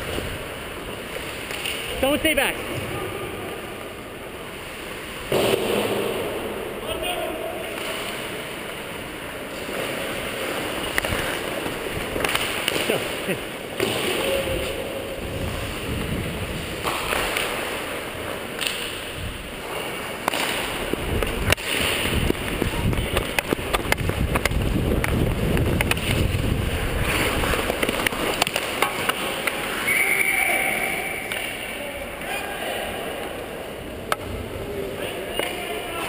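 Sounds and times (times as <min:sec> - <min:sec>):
hockey sticks and puck clacking: 0:00.8 - 0:02.6, 0:09.5 - 0:14.8, 0:15.4 - 0:32.4, 0:33.2 - 0:34.4, 0:35.3 - 0:36.0
skates on ice: 0:09.4 - 0:32.4
wind rushing over microphone: 0:15.2 - 0:16.8, 0:20.9 - 0:27.7.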